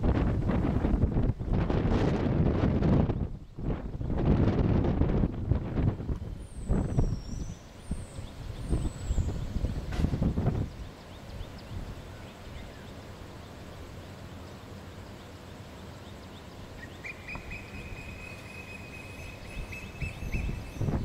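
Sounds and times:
distant birds chirping: 6.3s - 21.0s.

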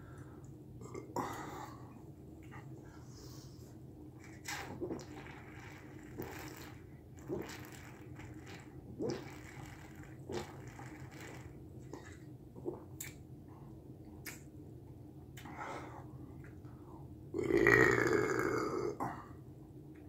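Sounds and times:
person gulping from a bottle: 4.2s - 13.2s.

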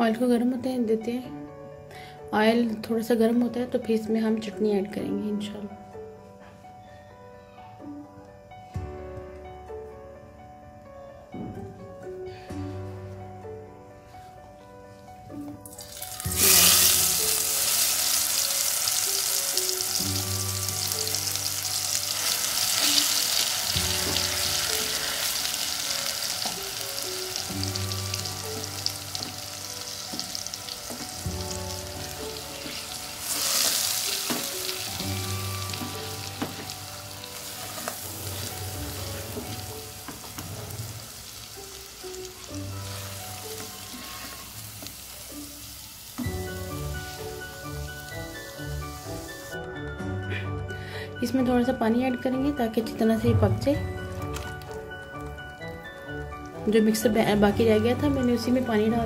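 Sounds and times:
paste sizzling in hot oil: 15.7s - 49.6s
spatula stirring in pot: 37.4s - 40.4s, 42.8s - 45.0s.

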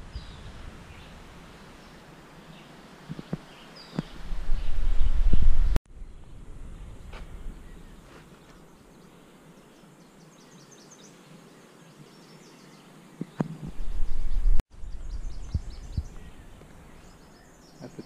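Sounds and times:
wind buffeting microphone: 0.0s - 8.1s, 13.4s - 17.2s.

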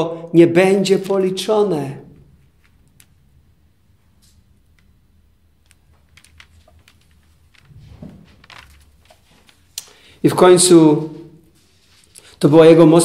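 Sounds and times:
faint clicks and rustles: 4.0s - 10.2s.

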